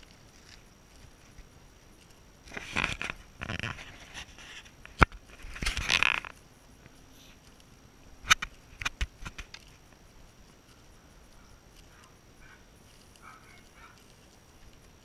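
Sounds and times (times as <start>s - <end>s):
rustling and scuffing footsteps: 0.0s - 15.0s
sharp click: 7.4s - 9.7s.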